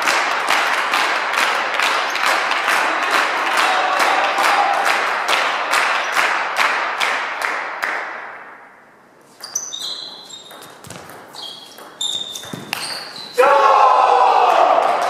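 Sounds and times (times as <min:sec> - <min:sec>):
spectators clapping in rhythm: 0:00.0 - 0:08.5.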